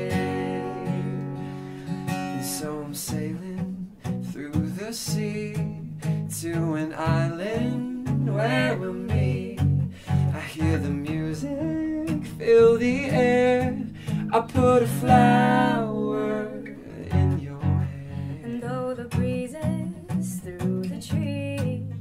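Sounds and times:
acoustic guitar strumming: 0:00.0 - 0:22.0
voices singing a duet: 0:07.2 - 0:21.8.

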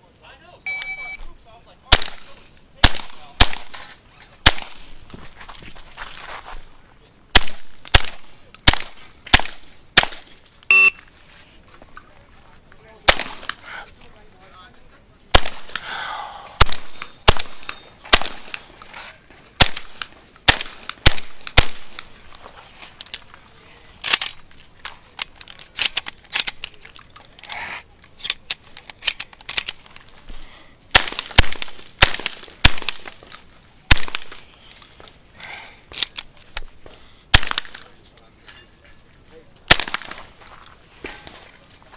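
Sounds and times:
shotgun shots: 0:01.9 - 0:04.9, 0:07.3 - 0:11.0, 0:13.0 - 0:13.6, 0:15.3 - 0:15.9, 0:16.6 - 0:18.7, 0:19.6 - 0:22.1, 0:30.9 - 0:33.2, 0:33.9 - 0:34.5, 0:37.3 - 0:37.9, 0:39.7 - 0:40.3
clicks of gun loading: 0:24.0 - 0:30.1, 0:35.9 - 0:36.7.

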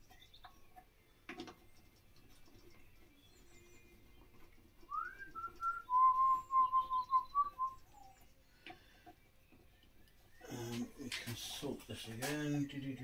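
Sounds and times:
person whistling a tune: 0:04.9 - 0:08.1.

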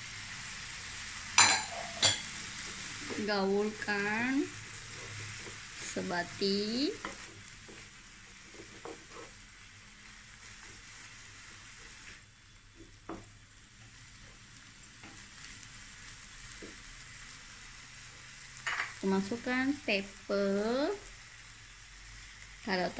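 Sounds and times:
food sizzling in a pan: 0:00.0 - 0:22.9
spatula scraping a pan: 0:01.4 - 0:06.1, 0:06.9 - 0:09.7.

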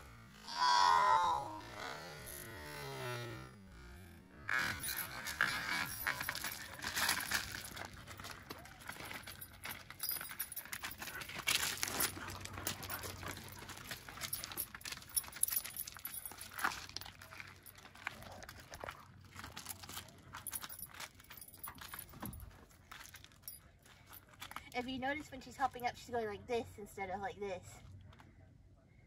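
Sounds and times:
metallic leash jingling: 0:04.5 - 0:25.2
footsteps crunching on gravel: 0:04.6 - 0:22.1.

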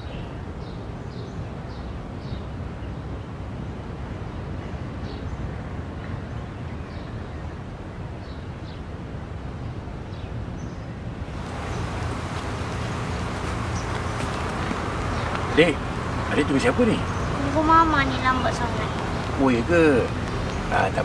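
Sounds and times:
traffic hum: 0:11.1 - 0:21.0
bird chirps: 0:11.4 - 0:21.0.

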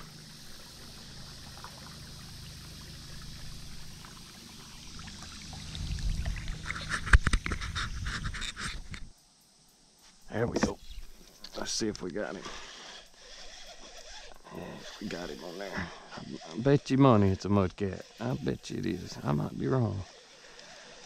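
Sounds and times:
water trickling and dripping: 0:00.0 - 0:07.2
steady low rumble: 0:01.2 - 0:07.0.

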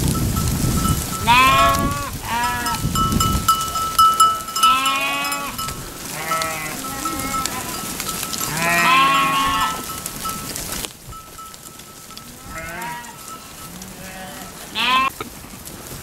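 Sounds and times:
sheep bleating: 0:01.2 - 0:03.0, 0:04.4 - 0:09.9, 0:12.3 - 0:15.2.

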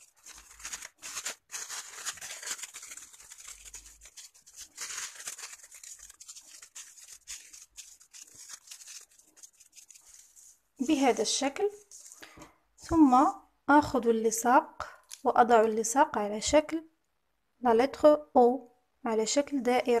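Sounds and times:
crepe paper crinkling: 0:00.0 - 0:13.4.

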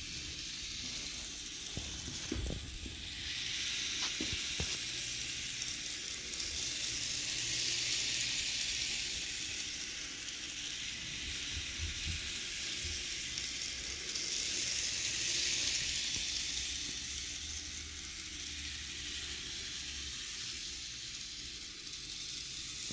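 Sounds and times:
model train whirring: 0:00.0 - 0:22.9.

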